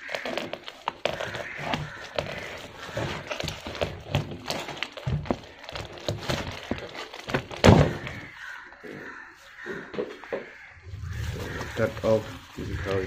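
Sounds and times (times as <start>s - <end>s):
thud: 7.3s - 8.3s.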